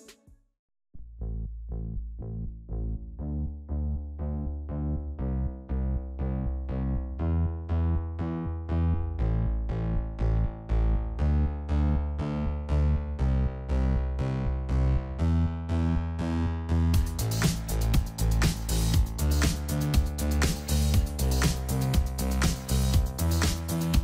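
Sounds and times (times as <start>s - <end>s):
synthesizer pulsing chords: 2.8s - 24.0s
drums: 17.0s - 24.0s.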